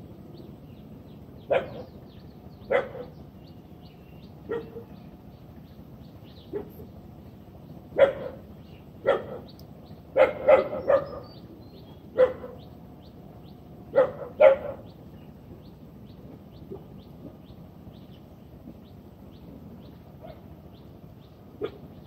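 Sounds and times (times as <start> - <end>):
dog barking: 1.5 - 1.9, 2.7 - 3.2, 4.5 - 4.9, 6.5 - 6.8, 8.0 - 8.4, 9.0 - 9.5, 10.2 - 11.4, 12.1 - 12.6, 13.9 - 14.9, 21.6 - 21.9.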